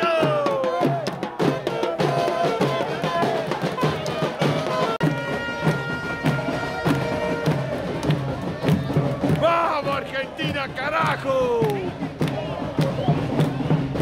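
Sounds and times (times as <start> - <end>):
drum beat: 0.0 - 14.0
saxophone: 1.4 - 8.4.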